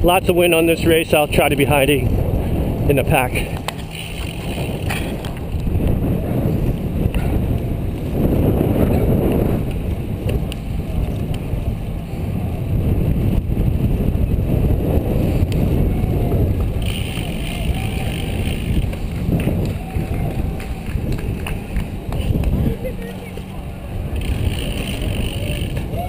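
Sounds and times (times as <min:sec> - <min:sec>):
wind rumble on microphone: 0:00.0 - 0:26.0.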